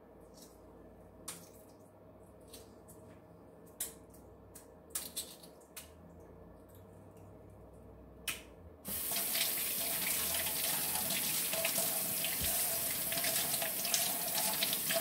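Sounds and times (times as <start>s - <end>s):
faucet water running: 8.9s - 15.0s
water splashing into steel sink: 8.9s - 15.0s.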